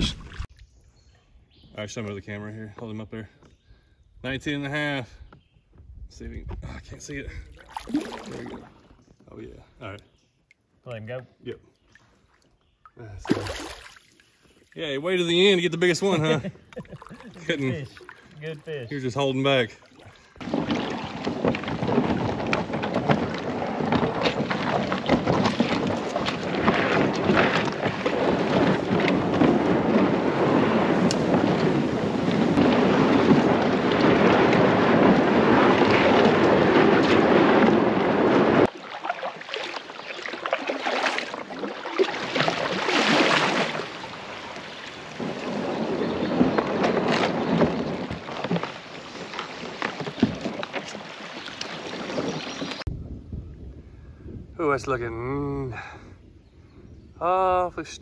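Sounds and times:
shallow running water: 7.0s - 10.0s, 11.9s - 52.9s
kayak hull scraping over gravel: 14.2s - 52.9s.

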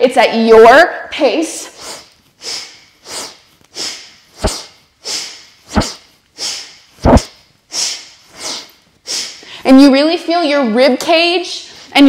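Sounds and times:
woman breathing forcefully: 1.7s - 9.7s.

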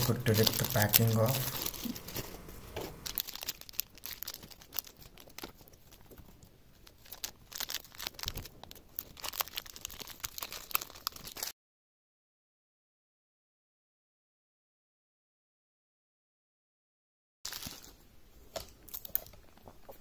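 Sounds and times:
plastic wrapping crinkling and tearing: 0.0s - 11.6s, 17.5s - 20.0s.

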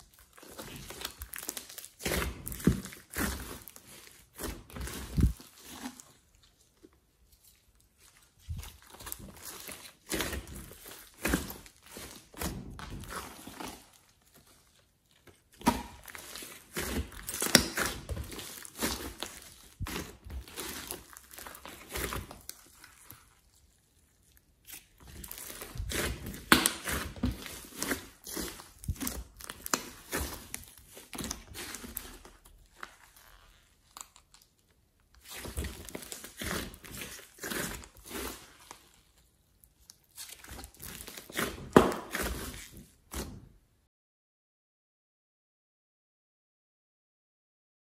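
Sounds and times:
slime squishing and popping: 0.1s - 6.0s, 15.5s - 23.3s, 24.6s - 33.1s.

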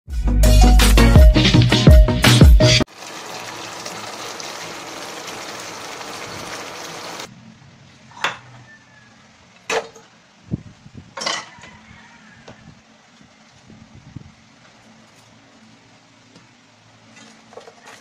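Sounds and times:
food sizzling in a pan: 2.9s - 7.3s.

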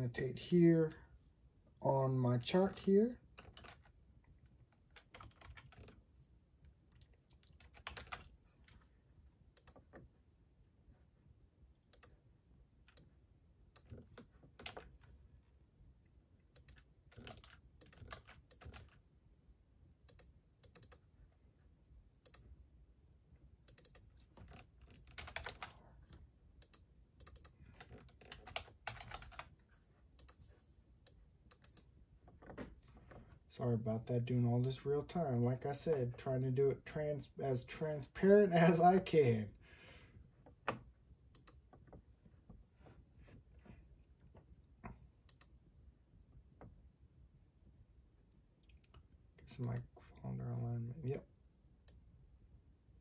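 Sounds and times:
computer keyboard key clicks: 20.1s - 21.0s, 23.7s - 25.7s, 26.6s - 29.4s.

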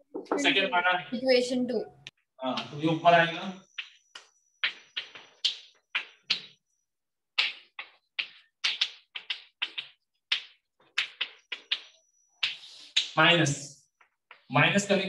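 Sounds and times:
chalk scratching on chalkboard: 7.8s - 13.2s.

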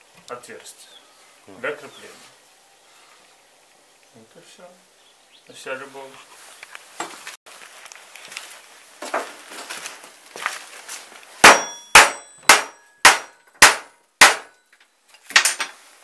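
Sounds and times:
hammer striking steel: 11.4s - 14.6s.

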